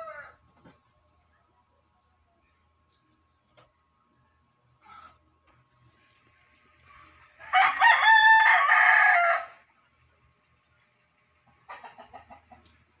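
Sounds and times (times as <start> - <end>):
rooster crowing: 0.0 - 0.4, 7.4 - 9.7
chicken clucking: 11.3 - 13.0.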